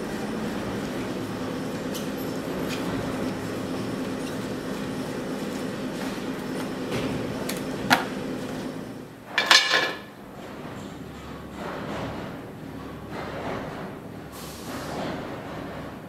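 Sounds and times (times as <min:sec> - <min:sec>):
low workshop hum: 0:00.0 - 0:16.0
metal rims clattering: 0:09.3 - 0:10.1.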